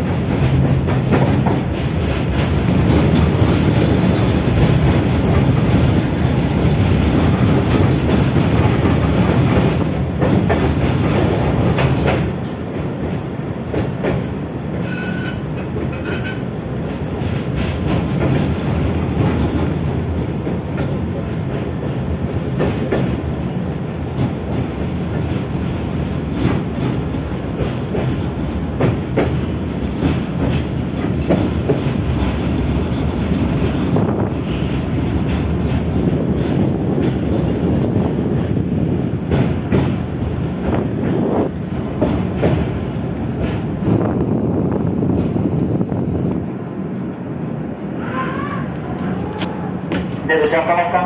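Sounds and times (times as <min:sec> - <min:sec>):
clacks over rail joints: 0:00.0 - 0:45.5, 0:48.7 - 0:51.0
tram wheels rumbling on rail: 0:00.0 - 0:51.0.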